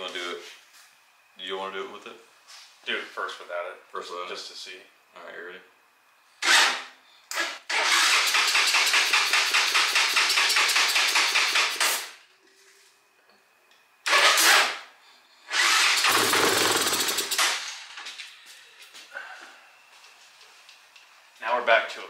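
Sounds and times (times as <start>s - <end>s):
engine cranking on starter: 6.4s - 12.1s, 14.1s - 14.8s, 15.5s - 17.9s
engine briefly firing: 7.4s - 12.1s, 15.5s - 17.8s.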